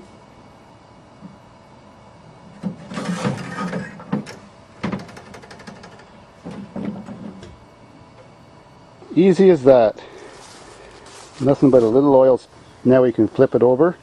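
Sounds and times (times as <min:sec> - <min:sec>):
metal scraping and clatter: 0:02.8 - 0:04.1
small rattling clicks: 0:04.3 - 0:06.1.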